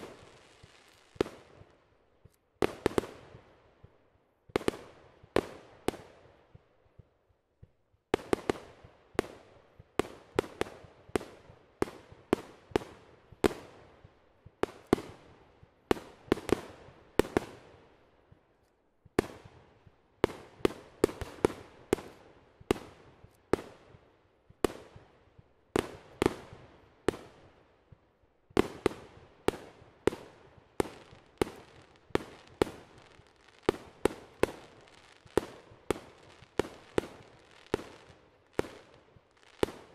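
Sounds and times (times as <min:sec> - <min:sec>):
fireworks bursting: 0:00.0 - 0:03.4, 0:28.5 - 0:39.9.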